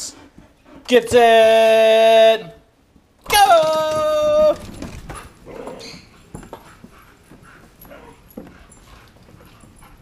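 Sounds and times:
dogs whining and yipping: 0:05.1 - 0:10.0.

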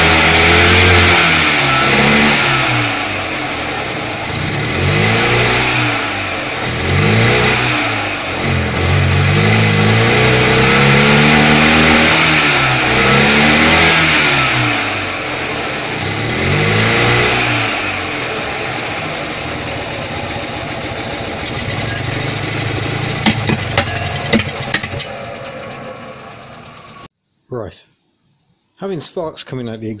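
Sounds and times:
engine revving: 0:00.0 - 0:27.1
exhaust backfire pops: 0:21.6 - 0:26.0.

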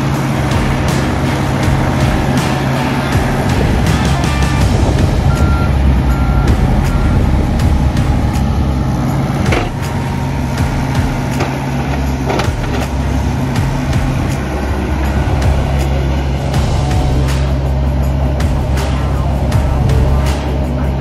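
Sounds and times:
diesel excavator engine running: 0:00.0 - 0:21.0
travel alarm beeps: 0:05.3 - 0:07.3
machine clanks: 0:09.4 - 0:14.4.

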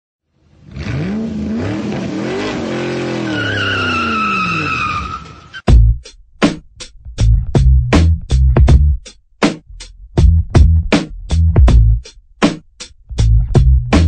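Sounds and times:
car engine revving: 0:00.5 - 0:05.0
tyre squeal: 0:02.9 - 0:05.7
music: 0:05.6 - 0:14.0.

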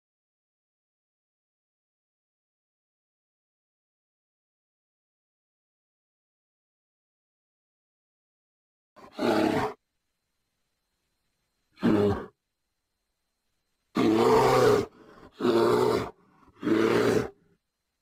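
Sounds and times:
bear growling: 0:09.0 - 0:09.8, 0:11.8 - 0:12.4, 0:13.9 - 0:17.5.

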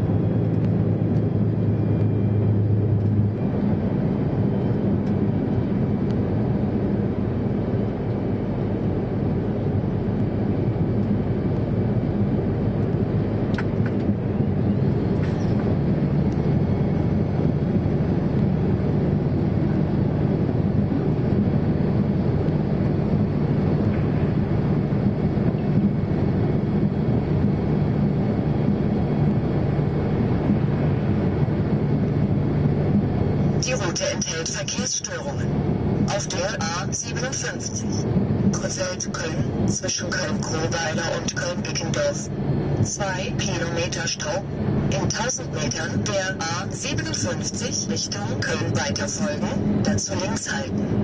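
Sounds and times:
lorry diesel engine drone: 0:00.0 - 0:51.0.

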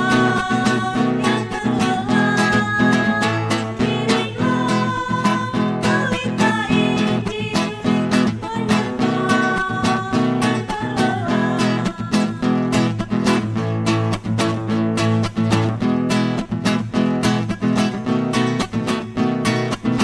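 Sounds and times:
women singing a hymn: 0:00.0 - 0:12.7
acoustic guitar strumming: 0:00.0 - 0:20.0.

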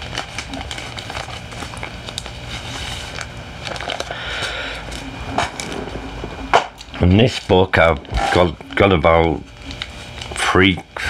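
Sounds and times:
comic books rustling: 0:00.0 - 0:04.1.

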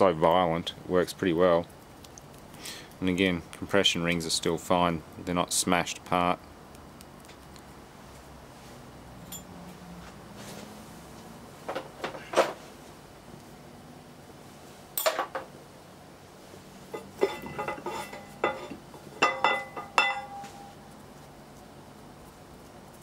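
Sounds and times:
metal engine parts clinking: 0:09.2 - 0:09.5, 0:15.0 - 0:15.5, 0:16.9 - 0:20.5.

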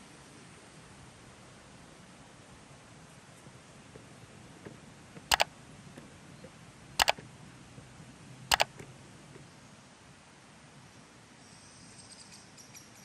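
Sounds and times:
computer mouse double clicks: 0:07.0 - 0:07.2, 0:08.5 - 0:08.7.

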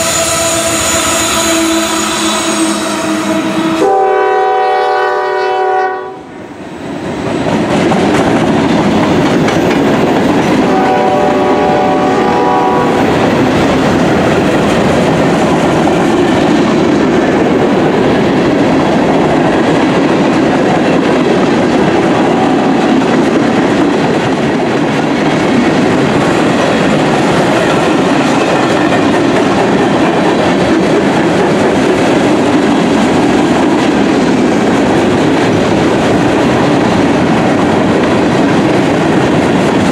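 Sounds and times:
train horn: 0:00.0 - 0:06.5, 0:10.6 - 0:13.1, 0:21.9 - 0:23.0
freight train rolling past: 0:00.0 - 0:39.9
wheels clacking over rail joints: 0:07.3 - 0:10.7.

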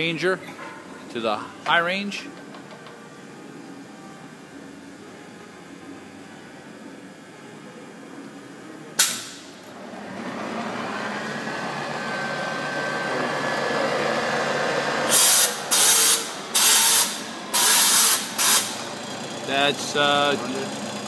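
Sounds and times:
mill spindle whirring: 0:09.6 - 0:21.0
loud short hissing bursts: 0:15.1 - 0:18.8.

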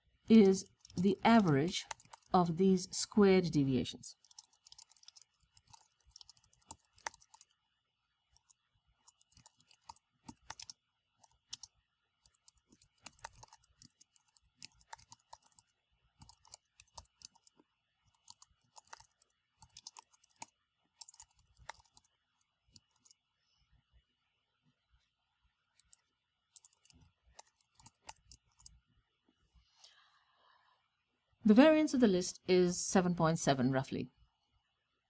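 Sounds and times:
computer keyboard typing: 0:00.3 - 0:02.4, 0:04.2 - 0:07.6, 0:08.4 - 0:23.2, 0:25.8 - 0:28.8.

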